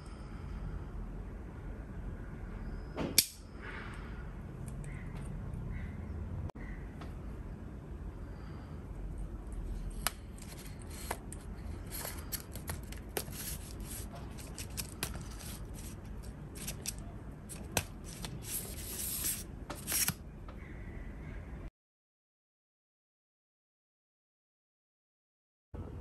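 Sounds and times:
tripod leg sections scraping: 9.9s - 20.2s.

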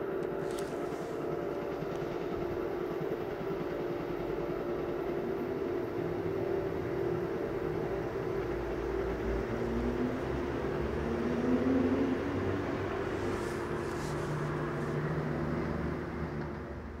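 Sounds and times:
passenger train rumble: 0.0s - 17.0s.

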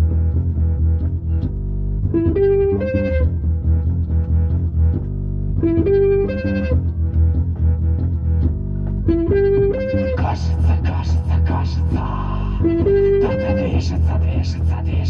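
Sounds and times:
guitar riff: 0.0s - 14.1s
bass guitar line: 0.0s - 15.0s.

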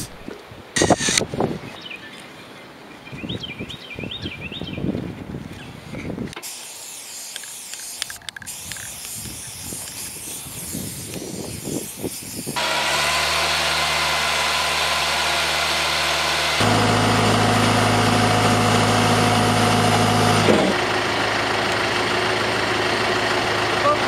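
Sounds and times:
spray paint can hissing: 0.8s - 1.2s, 6.4s - 16.7s
drill rig engine running: 12.6s - 24.0s.

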